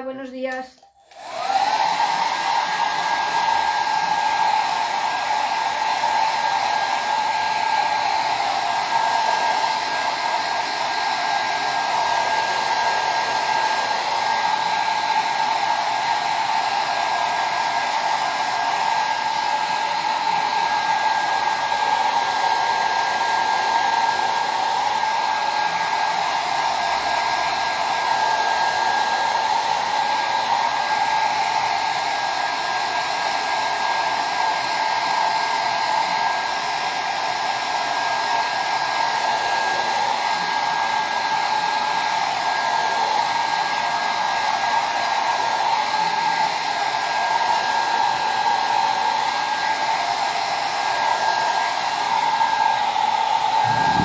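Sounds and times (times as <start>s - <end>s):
hot-air dryer air rush: 0.0s - 54.0s
dryer motor whine: 49.0s - 54.0s.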